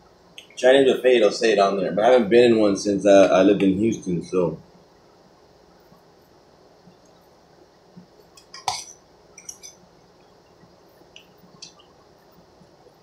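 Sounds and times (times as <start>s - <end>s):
fork clinking against metal pot: 8.4s - 9.8s.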